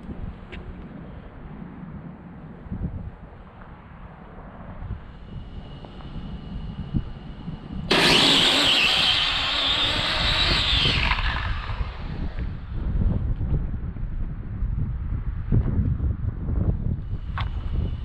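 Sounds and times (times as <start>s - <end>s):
high-pitched electric motor whine: 4.8s - 13.0s, 17.0s - 18.0s.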